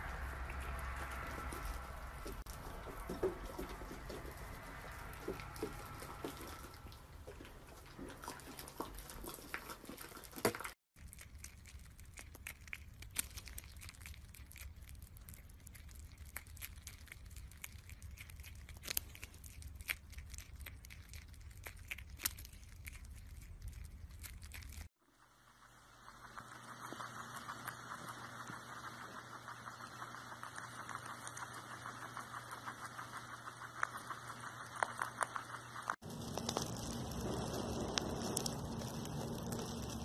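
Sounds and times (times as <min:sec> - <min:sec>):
prairie dog crunching apple: 0:00.0 - 0:24.9, 0:25.5 - 0:40.0
llama munching: 0:00.1 - 0:10.6.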